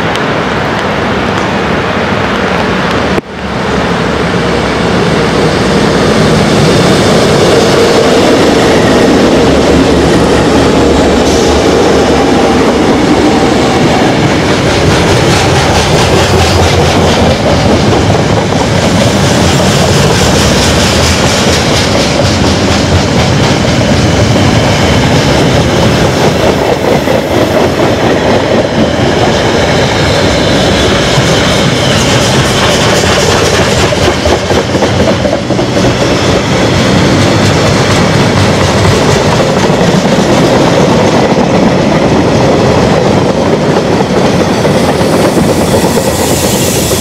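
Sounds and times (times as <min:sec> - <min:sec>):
diesel locomotives passing: 0:00.0 - 0:47.0
train wagons roaring past: 0:00.0 - 0:47.0
train wheel clicks: 0:14.2 - 0:30.0, 0:31.1 - 0:41.6.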